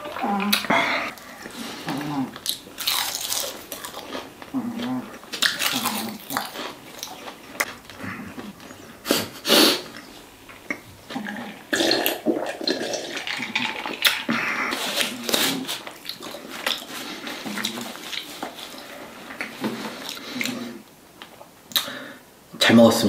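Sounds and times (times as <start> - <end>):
chewing food: 0.0 - 9.0, 12.7 - 21.9
gulping water: 10.6 - 19.0.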